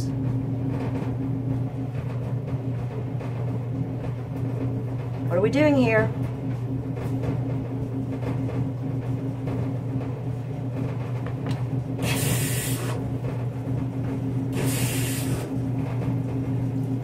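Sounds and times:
steady low hum: 0:00.0 - 0:17.0
short hissing bursts: 0:12.0 - 0:13.0, 0:14.6 - 0:15.5.

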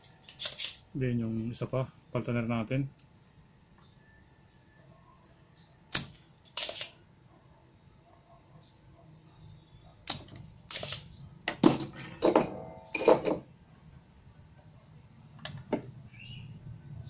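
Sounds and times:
desoldering pump snapping: 0:05.9 - 0:06.9, 0:10.0 - 0:11.0.

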